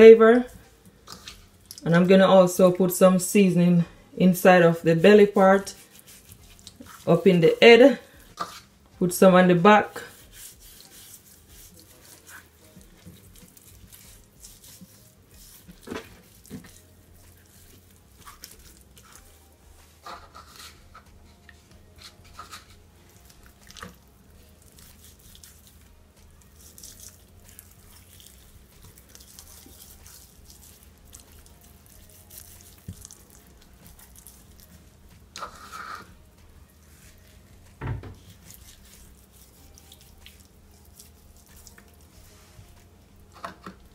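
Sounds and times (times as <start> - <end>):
hands rubbing spice into fish: 5.6 - 7.2, 10.0 - 42.9.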